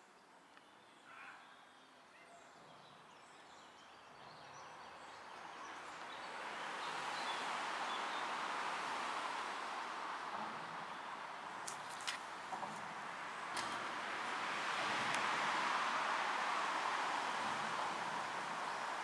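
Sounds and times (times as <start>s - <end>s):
steady rushing noise: 6.3s - 19.0s.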